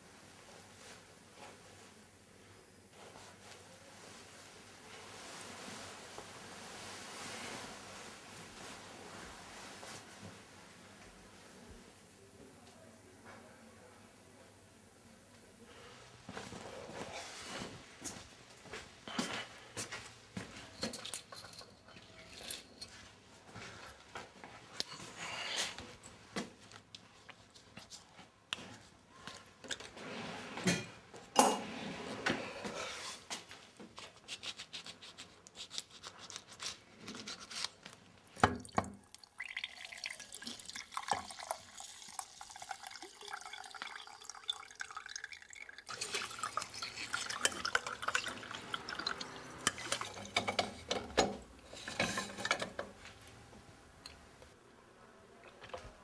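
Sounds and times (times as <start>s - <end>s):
liquid dripping: 38.4s - 51.0s
juice pouring into glass: 38.6s - 50.9s.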